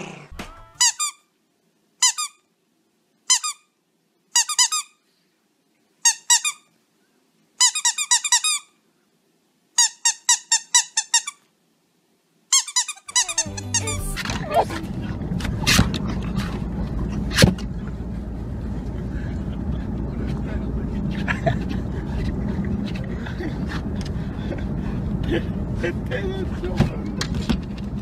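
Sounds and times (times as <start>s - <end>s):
squeaky dog toy squeaking: 0.7s - 1.2s, 2.0s - 2.4s, 3.3s - 3.7s, 4.4s - 5.0s, 6.0s - 6.6s, 7.6s - 8.7s, 9.8s - 11.4s, 12.5s - 14.8s.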